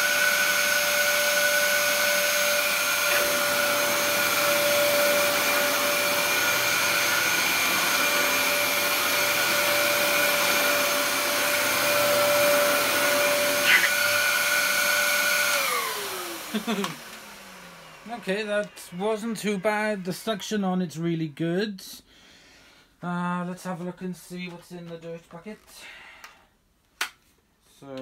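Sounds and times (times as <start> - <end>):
vacuum cleaner running: 0.0 - 20.6.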